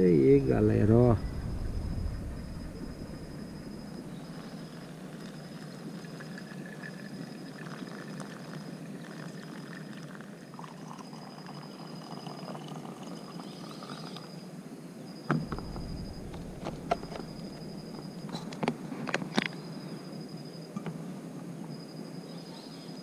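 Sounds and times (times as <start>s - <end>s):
water trickling onto coffee grounds: 5.1s - 14.3s
coffee poured into a mug: 5.2s - 14.3s.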